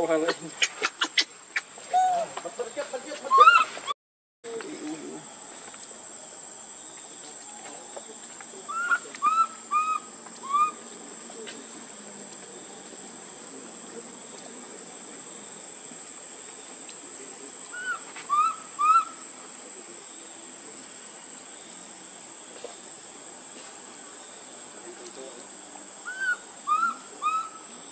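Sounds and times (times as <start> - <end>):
short arched animal calls: 0.5 - 2.3, 3.3 - 3.9, 8.7 - 10.8, 17.7 - 19.3, 26.0 - 27.7.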